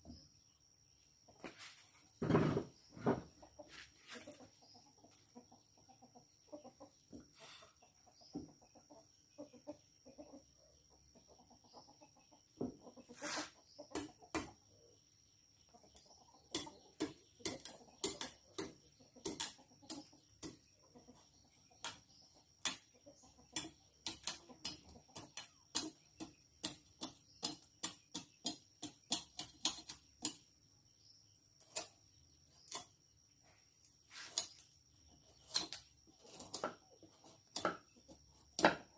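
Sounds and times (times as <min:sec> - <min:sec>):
knife scraping and chopping gourd: 0:16.5 - 0:20.6, 0:23.6 - 0:30.4, 0:31.6 - 0:33.0, 0:34.0 - 0:38.9.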